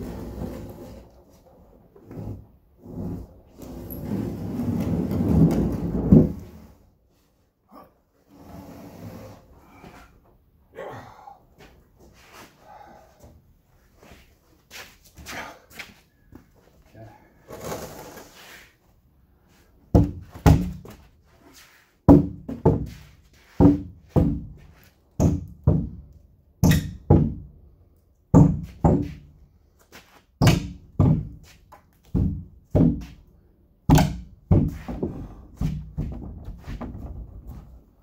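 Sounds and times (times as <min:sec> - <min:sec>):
heavy wooden thunks on hardwood: 0:19.9 - 0:21.0, 0:22.1 - 0:26.0, 0:26.6 - 0:27.5, 0:28.4 - 0:29.3, 0:30.4 - 0:31.4, 0:32.1 - 0:33.2, 0:33.9 - 0:37.6.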